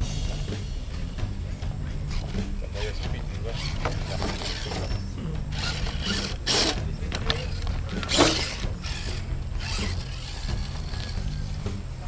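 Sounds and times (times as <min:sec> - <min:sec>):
toy truck motor whirring: 0:02.1 - 0:11.8.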